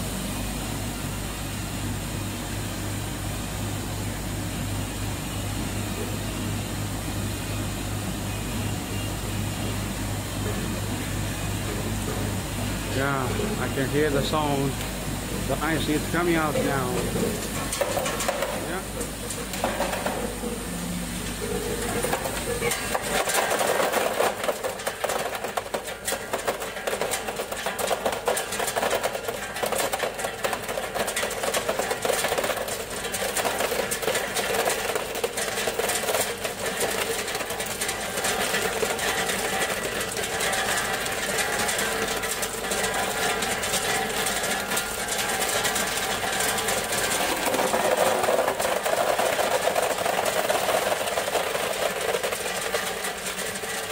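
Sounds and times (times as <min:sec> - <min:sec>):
mechanical hum: 0:00.0 - 0:53.9
ice tubes clattering into water: 0:11.6 - 0:53.9.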